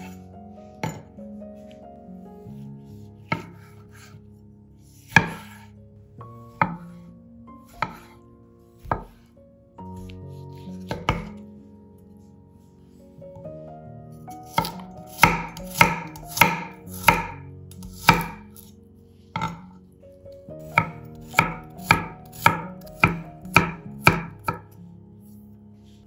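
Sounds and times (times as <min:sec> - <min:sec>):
soft background music: 0:00.0 - 0:26.0
knife chopping on cutting board: 0:02.9 - 0:04.1, 0:05.0 - 0:05.6, 0:06.5 - 0:07.0, 0:07.7 - 0:08.2, 0:08.8 - 0:09.3, 0:10.0 - 0:11.4, 0:14.4 - 0:18.7, 0:19.3 - 0:19.8, 0:20.6 - 0:24.7.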